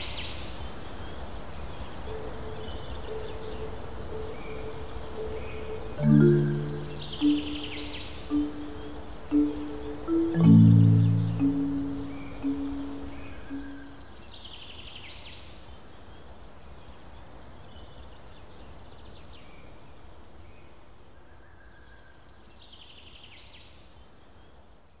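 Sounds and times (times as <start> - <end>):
songbird singing: 1.8 - 15.4
low music notes: 6.0 - 13.9.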